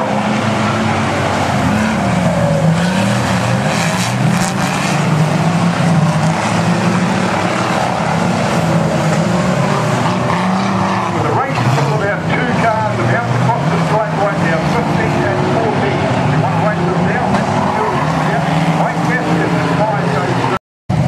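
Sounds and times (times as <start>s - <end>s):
racing car engines: 0.0s - 21.0s.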